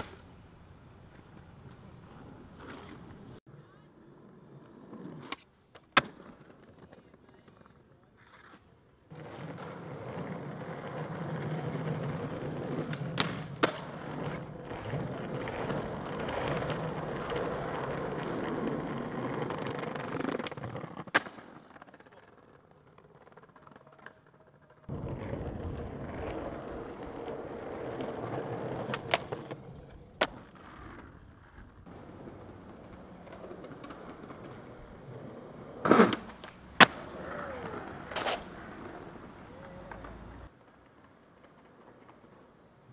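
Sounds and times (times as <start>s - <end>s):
skateboard popping and landing: 0.0s - 3.4s, 4.0s - 42.9s
skateboard wheels rolling on pavement: 0.0s - 42.9s.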